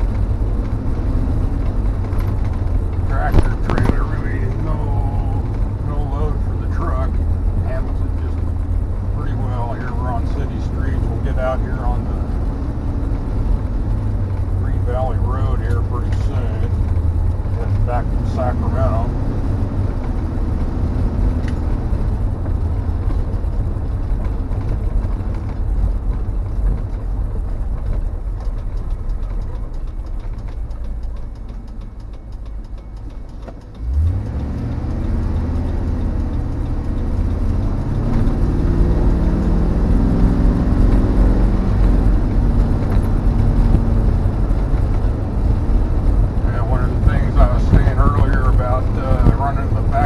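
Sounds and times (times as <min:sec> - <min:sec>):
road noise: 0:00.0 - 0:50.0
truck engine accelerating: 0:00.0 - 0:50.0.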